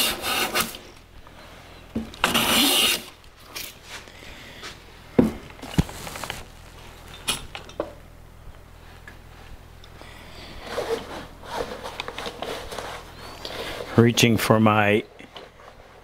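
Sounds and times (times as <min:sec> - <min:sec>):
soft scraping rustle: 0:03.4 - 0:04.9, 0:05.5 - 0:07.3, 0:08.7 - 0:16.0.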